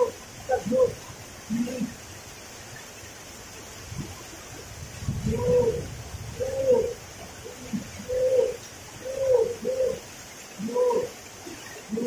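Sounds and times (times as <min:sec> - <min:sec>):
dove cooing: 0:00.0 - 0:02.0, 0:05.2 - 0:12.0.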